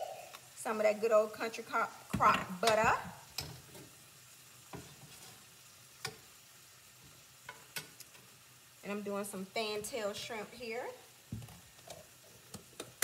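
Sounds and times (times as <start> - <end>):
butter sizzling in skillet: 0.0 - 13.0
metal spoon clicking on pan: 6.0 - 6.3, 7.5 - 8.2.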